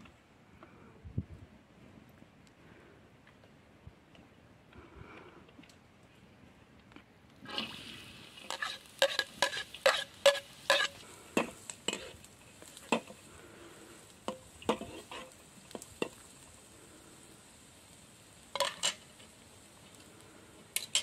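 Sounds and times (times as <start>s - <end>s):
onion sizzling in hot oil: 7.4s - 21.0s
metal spoon scraping wok: 7.5s - 13.2s, 14.3s - 15.4s, 18.5s - 19.1s.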